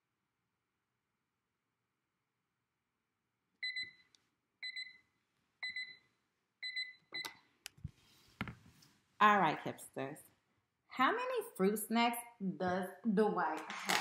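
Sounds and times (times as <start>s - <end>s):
timer alarm beeping: 3.6s - 4.0s, 4.6s - 5.0s, 5.6s - 7.3s.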